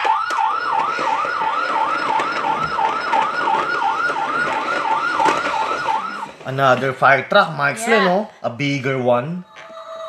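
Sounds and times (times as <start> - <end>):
toy electronic siren yelping: 0.0 - 6.5.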